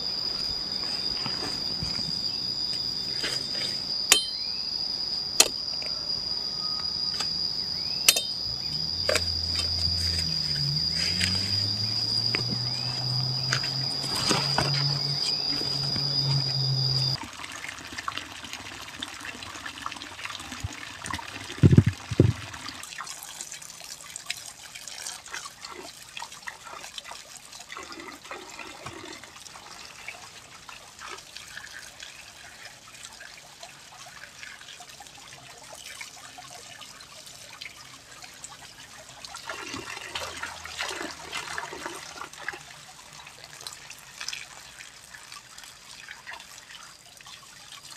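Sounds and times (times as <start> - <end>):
insects chirring: 0.0 - 17.2, 18.4 - 47.9
low hum: 0.0 - 17.2
water trickling into a bowl: 6.9 - 47.9.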